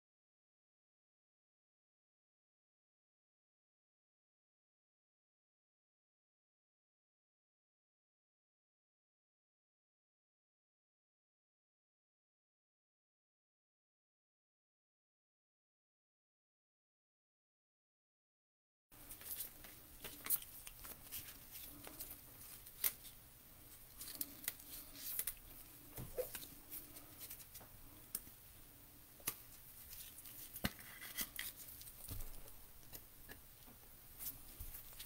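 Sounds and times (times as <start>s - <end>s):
cards clicking and rustling: 19.1s - 23.2s, 23.9s - 28.3s, 29.2s - 33.0s.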